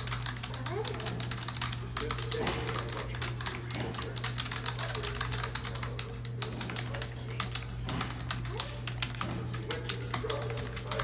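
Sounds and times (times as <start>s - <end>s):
computer keyboard typing: 0.0s - 11.0s
faint television voices: 0.0s - 11.0s
steady low hum: 0.0s - 11.0s.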